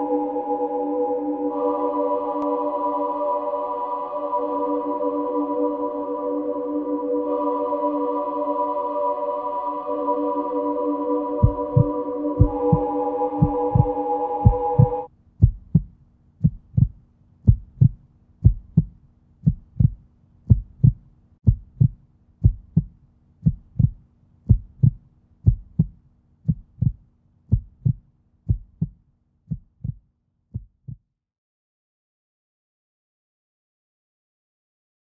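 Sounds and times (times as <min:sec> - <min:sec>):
sustained chord: 0:00.0 - 0:15.1
faint steady hum: 0:00.0 - 0:28.5
heartbeat-like double thump: 0:11.4 - 0:30.0, 0:30.6 - 0:31.0.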